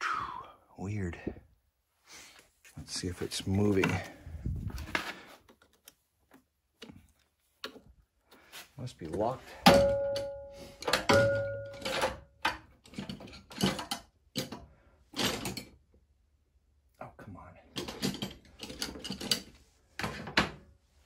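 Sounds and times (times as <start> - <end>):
tools clicking and rattling: 9.1 - 15.8, 17.7 - 20.1
metallic ring: 9.7 - 12.0.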